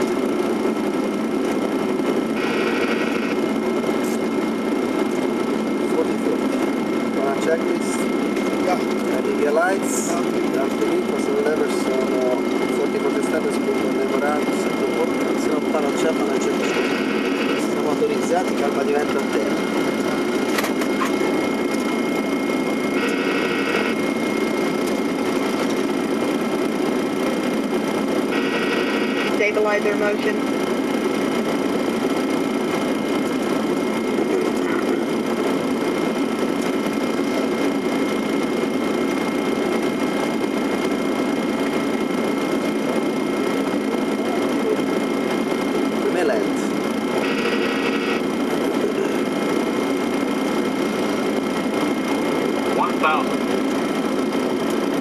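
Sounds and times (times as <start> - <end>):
airflow rush and engine hum: 0.0 - 55.0
short electronic tone: 23.0 - 24.0
short high-pitched buzz: 23.0 - 24.0.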